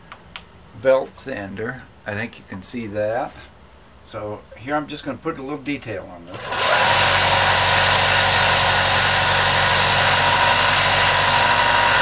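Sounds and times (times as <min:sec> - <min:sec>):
belt sander sanding wood: 0:06.4 - 0:12.0.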